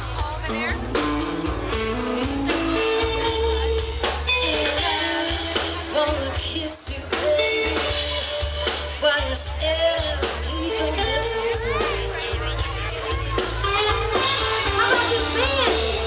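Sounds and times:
acoustic and electric guitars: 0:00.0 - 0:16.0
drum kit beat: 0:00.0 - 0:16.0
person singing: 0:04.3 - 0:12.2.

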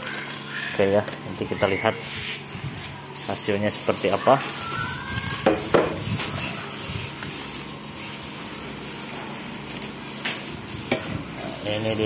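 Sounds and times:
spray gun hissing: 0:03.2 - 0:09.2, 0:10.0 - 0:12.0.

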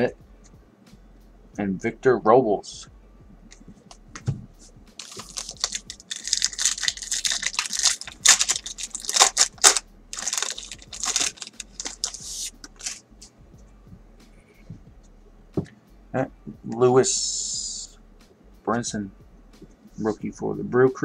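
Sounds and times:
foil wrapper tearing and crinkling: 0:05.0 - 0:13.0.

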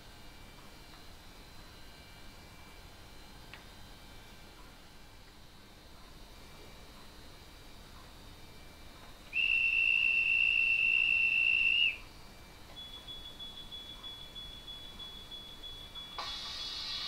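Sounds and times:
high train whistle from small speaker: 0:09.4 - 0:12.1.

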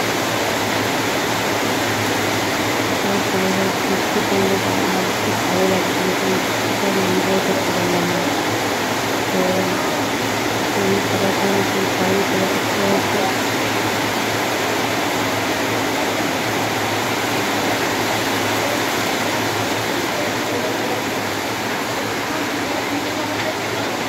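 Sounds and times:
heavy rain on roofing: 0:00.0 - 0:24.0.

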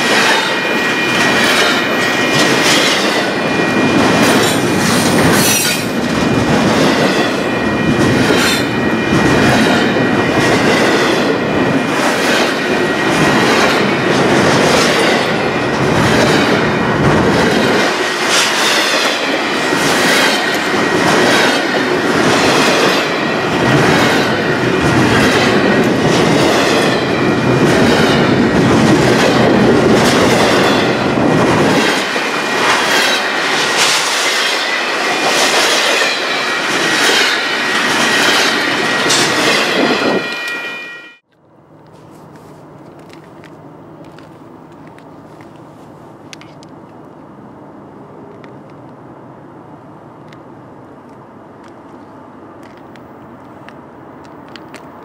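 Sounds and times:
freight train wheels rumbling on rail: 0:00.0 - 0:55.0
wheels clickety-clack: 0:01.2 - 0:03.4, 0:04.0 - 0:39.8.

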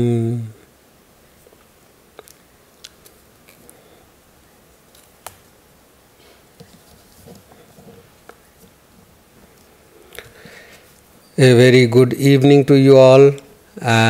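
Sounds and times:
soft rustles: 0:06.1 - 0:11.3.

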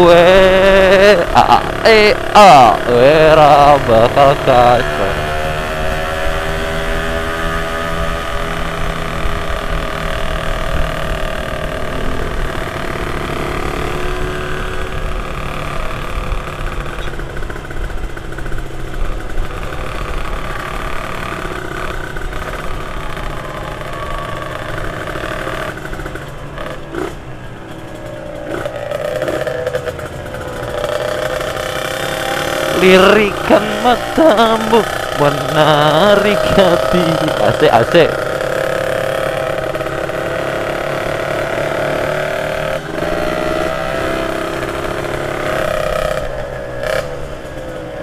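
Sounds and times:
motorcycle engine running: 0:00.0 - 0:48.0.

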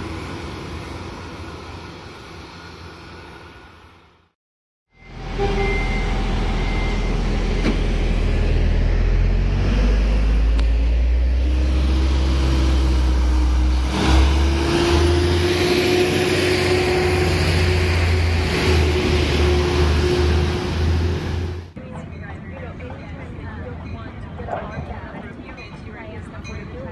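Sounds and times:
rolling noise of train cars: 0:00.0 - 0:04.3, 0:05.0 - 0:26.9
train engine rumble: 0:00.0 - 0:04.4, 0:05.0 - 0:26.9.

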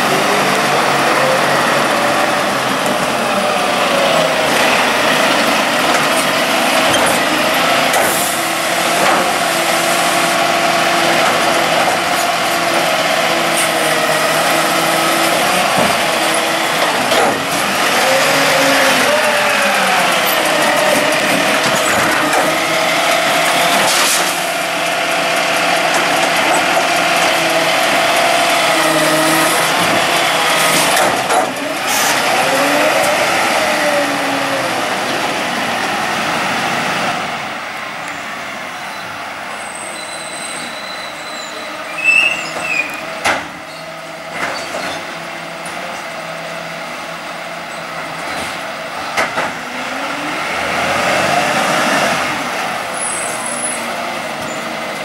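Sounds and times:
truck engine running: 0:00.0 - 0:41.9
garbage truck running: 0:00.0 - 0:55.0
hydraulics whining: 0:00.0 - 0:55.0.

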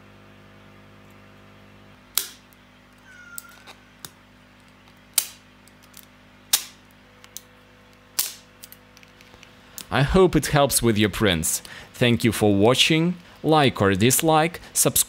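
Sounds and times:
side cutters snapping plastic: 0:02.1 - 0:02.6, 0:03.4 - 0:07.5, 0:08.1 - 0:09.9
faint short squeak: 0:03.0 - 0:03.9.

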